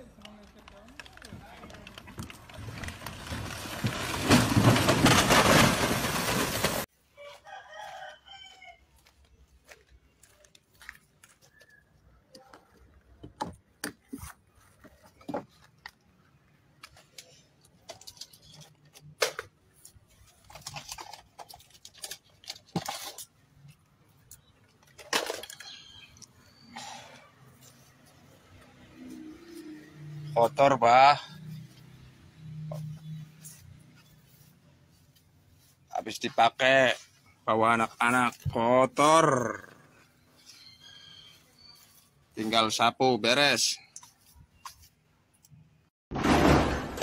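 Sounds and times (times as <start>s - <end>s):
cans crashing and clattering: 3.0s - 6.9s.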